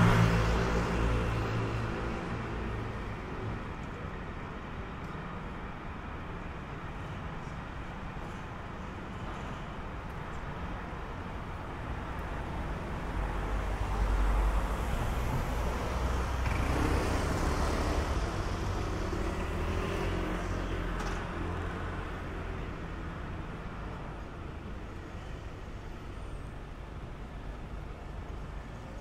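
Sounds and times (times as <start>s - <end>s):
cars and motorbikes passing: 0.0s - 3.8s, 12.8s - 24.0s.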